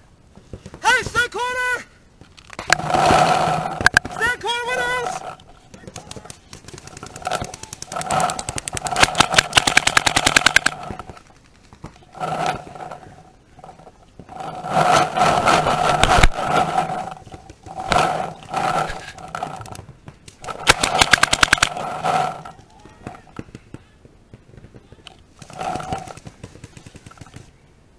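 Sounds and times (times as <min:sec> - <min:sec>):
paintball markers firing: 0:05.7 - 0:12.6, 0:19.4 - 0:27.6.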